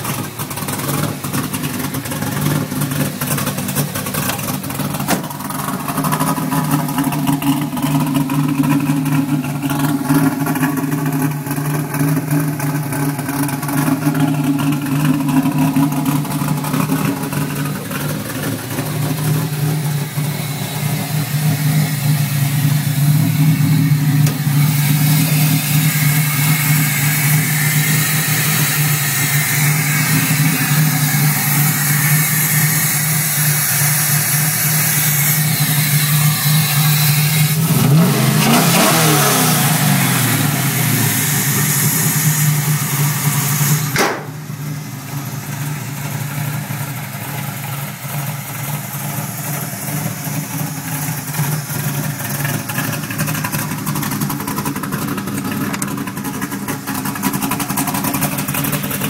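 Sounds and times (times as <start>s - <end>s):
car engine idling and revving: 0.0s - 59.0s
sharp click: 44.0s - 44.4s.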